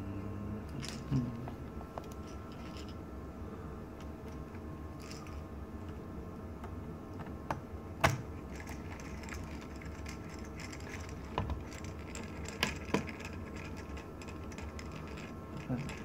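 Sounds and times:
steady low hum: 0:00.0 - 0:16.0.

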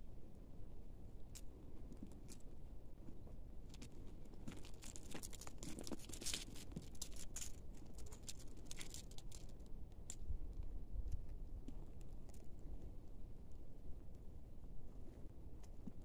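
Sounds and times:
cat scrabbling in leaves and gravel: 0:03.8 - 0:09.7.

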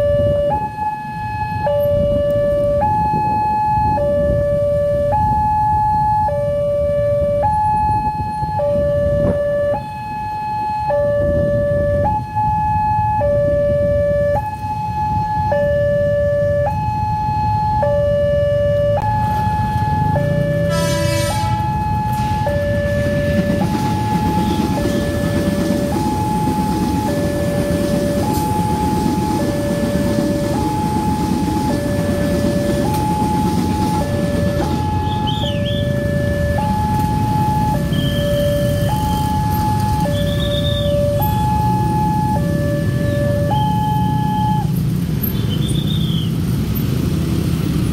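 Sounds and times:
two-tone crossing alarm: 0:00.0 - 0:46.2
train wheels rumbling on rail: 0:19.2 - 0:47.9.

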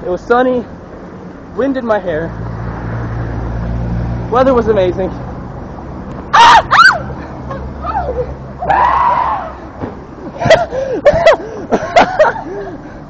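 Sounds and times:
girl screaming: 0:06.3 - 0:07.2, 0:07.8 - 0:09.6.

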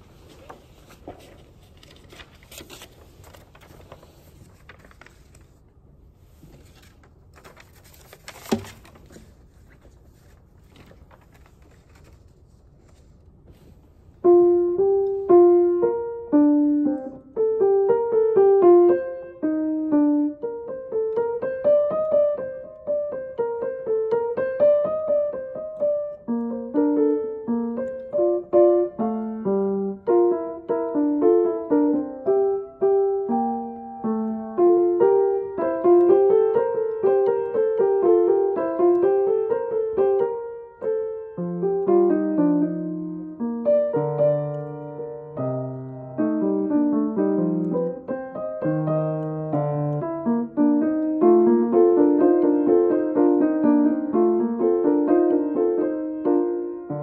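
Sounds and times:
faint handling sounds: 0:00.0 - 0:14.2
grand piano playing: 0:14.2 - 0:57.0.

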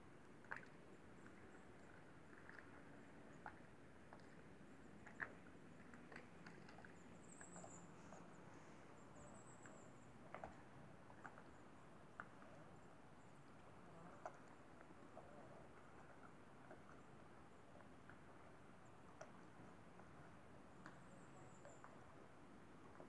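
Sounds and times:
faint clicks: 0:19.1 - 0:20.1.

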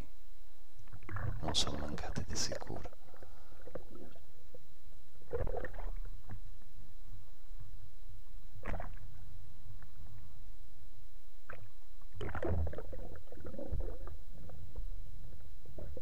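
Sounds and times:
low rumble of water: 0:00.9 - 0:07.8, 0:11.4 - 0:16.0.

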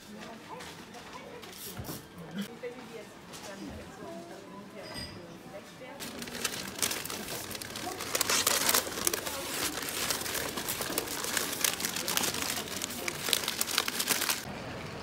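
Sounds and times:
wrapping paper crinkling: 0:06.0 - 0:14.5.

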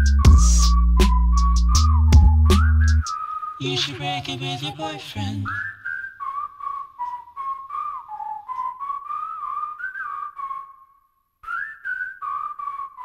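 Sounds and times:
light steady beat: 0:00.0 - 0:03.1
whistled melody: 0:00.0 - 0:13.0.

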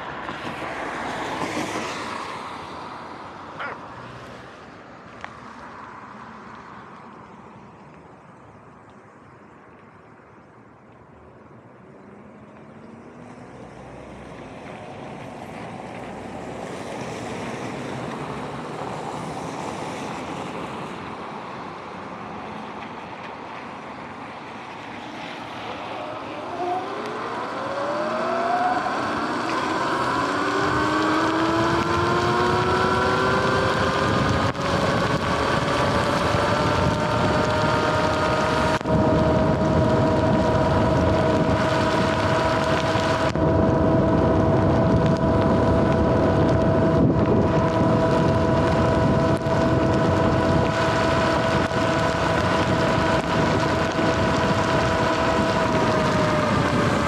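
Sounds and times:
wind noise on microphone: 0:23.3 - 0:57.0
electric motor whine: 0:25.5 - 0:57.0.

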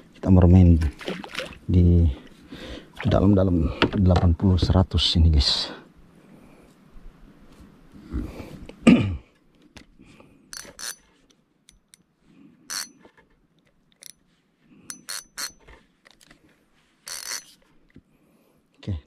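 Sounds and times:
metallic clinks of fishing tackle: 0:10.5 - 0:11.1, 0:12.7 - 0:13.0, 0:14.9 - 0:15.6.

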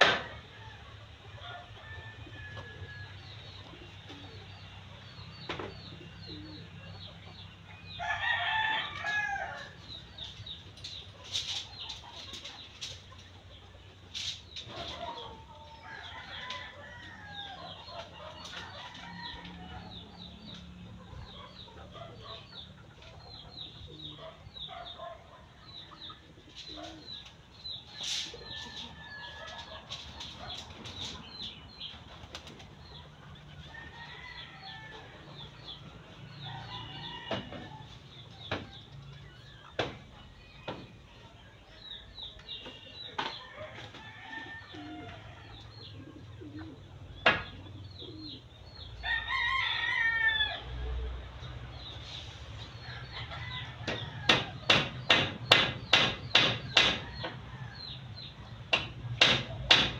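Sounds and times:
rooster crowing: 0:08.0 - 0:09.8, 0:15.2 - 0:17.7, 0:49.0 - 0:50.9
hens clucking: 0:08.8 - 0:48.6.

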